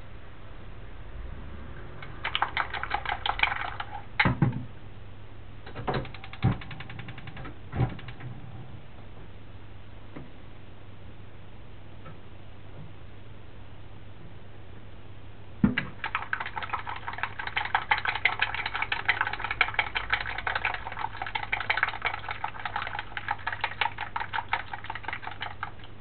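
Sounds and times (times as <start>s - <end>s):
chopsticks beating egg in metal bowl: 2.0s - 4.1s, 15.9s - 26.0s.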